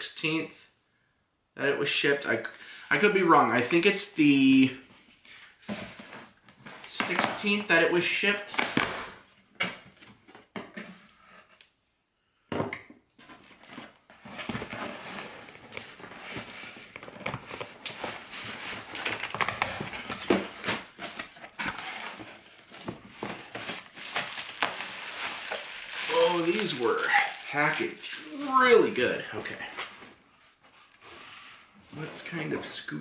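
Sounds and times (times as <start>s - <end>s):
cardboard rustling and crackling: 13.2s - 30.0s.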